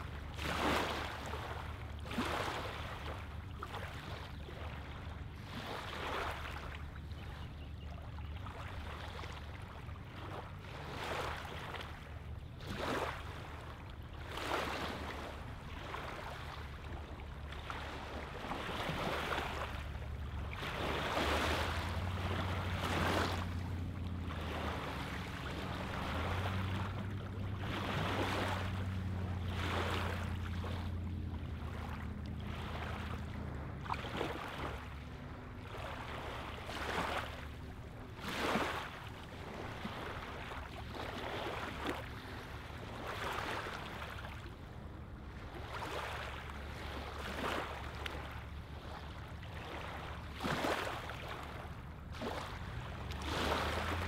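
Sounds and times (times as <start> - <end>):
small waves lapping on gravel: 0.0 - 7.4, 8.2 - 44.6, 45.3 - 54.0
low steady drone: 19.6 - 38.2.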